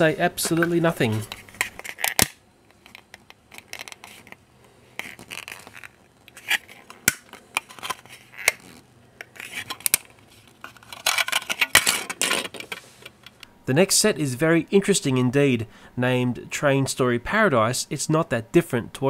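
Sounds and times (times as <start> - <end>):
plastic scraping rustle: 5.0 - 13.1.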